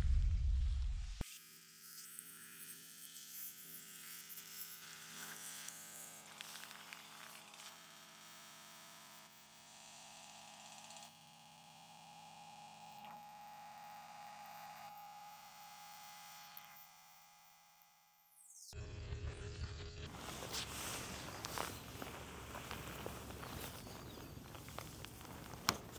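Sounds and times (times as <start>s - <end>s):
tent fabric rustling: 20.1s - 25.9s.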